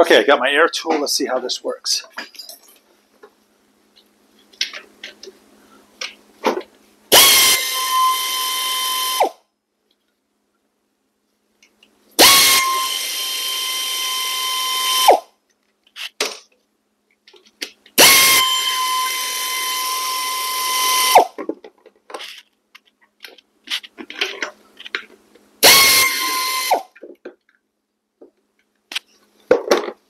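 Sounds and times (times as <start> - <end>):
pneumatic air ratchet whine: 7.1 - 9.4, 12.2 - 15.3, 18.0 - 21.4, 25.6 - 27.0.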